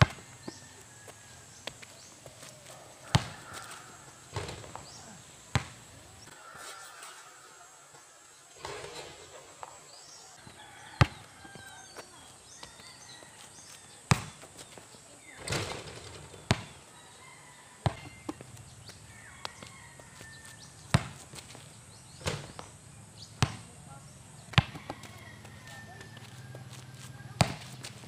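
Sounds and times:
basketball bouncing on concrete: 0.0 - 1.8, 2.4 - 5.9, 8.6 - 9.8, 10.4 - 14.8, 15.4 - 16.9, 17.8 - 21.6, 22.2 - 22.8, 23.4 - 23.8, 24.5 - 28.0
birds chirping: 0.0 - 26.6.

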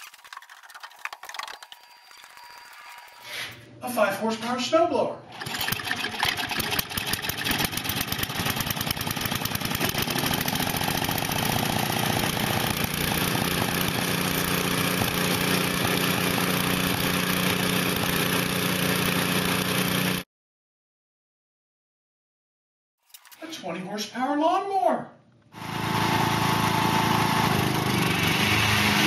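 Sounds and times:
snowblower engine running: 5.3 - 20.2, 25.6 - 29.0.

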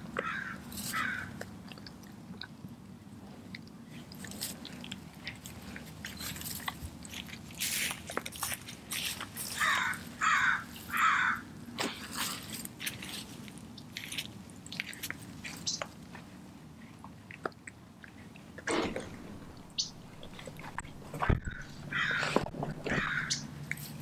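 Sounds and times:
dog chewing with loud crunches: 0.0 - 24.0
chewing clicks and smacks: 0.2 - 2.6, 3.3 - 8.8, 12.8 - 24.0.

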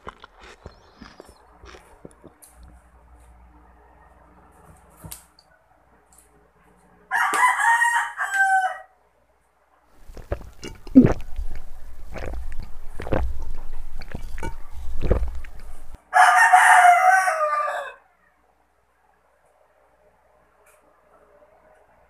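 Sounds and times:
rooster crowing: 7.1 - 9.0, 16.1 - 18.1.

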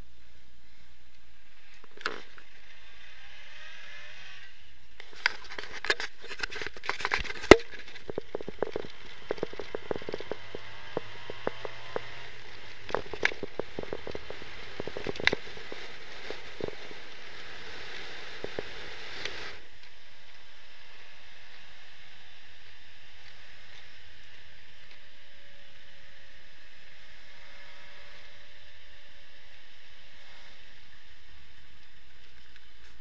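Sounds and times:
car running noise from inside: 0.0 - 33.0
clicks and knocks: 5.8 - 12.1.

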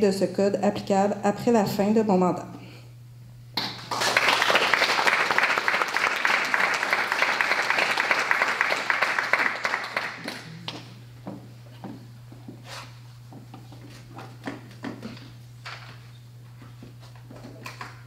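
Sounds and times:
audience applauding: 3.8 - 10.9.

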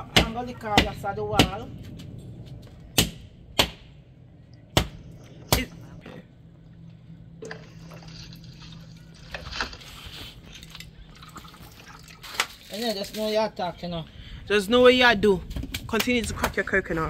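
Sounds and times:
liquid trickling into plastic cup: 7.4 - 12.8.

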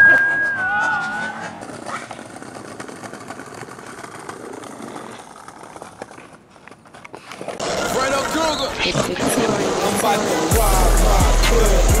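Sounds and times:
music: 10.2 - 12.0.

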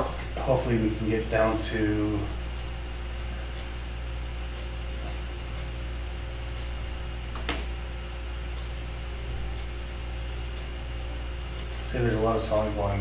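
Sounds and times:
electrical hum: 0.0 - 13.0
sharp click: 7.3 - 7.8.

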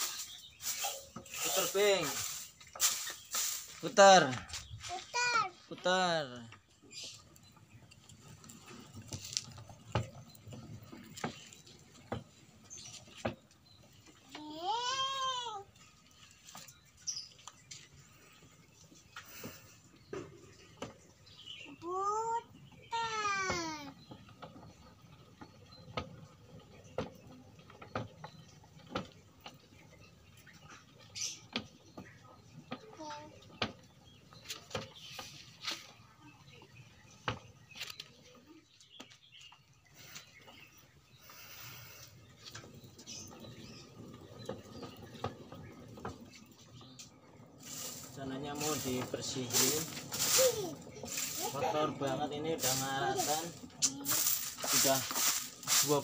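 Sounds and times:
spinning drum rattle: 42.3 - 56.0.

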